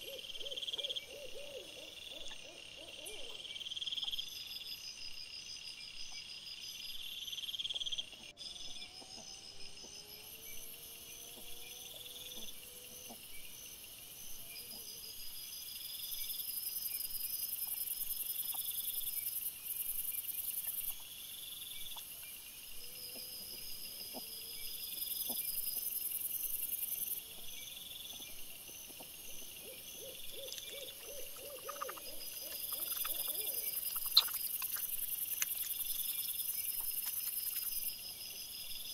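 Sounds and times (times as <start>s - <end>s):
night insects chirping: 0.0s - 38.9s
faint gliding calls: 29.4s - 37.6s.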